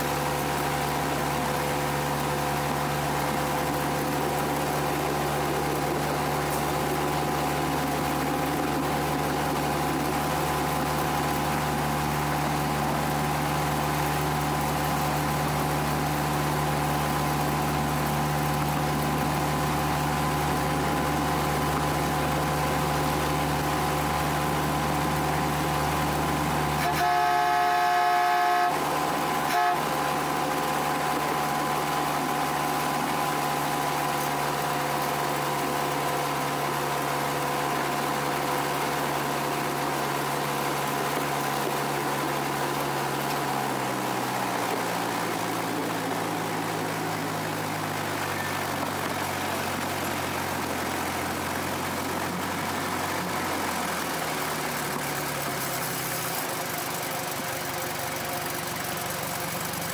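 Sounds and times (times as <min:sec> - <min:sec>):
small locomotive engine running: 0:00.0 - 0:59.9
locomotive horn blast: 0:26.6 - 0:30.9
short horn toot: 0:26.8 - 0:30.0.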